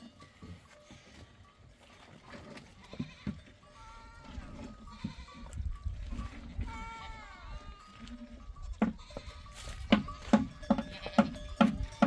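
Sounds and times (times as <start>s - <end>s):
livestock bleating: 2.7s - 5.6s, 6.2s - 12.0s.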